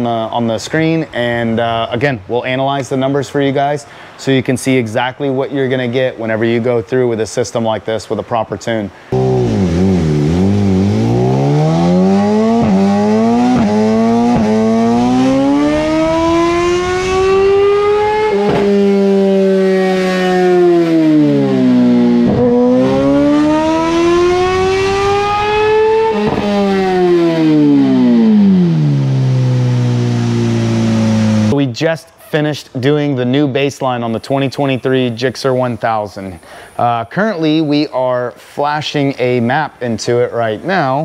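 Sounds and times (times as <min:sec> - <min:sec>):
motorcycle engine revving: 0:09.2 - 0:31.6.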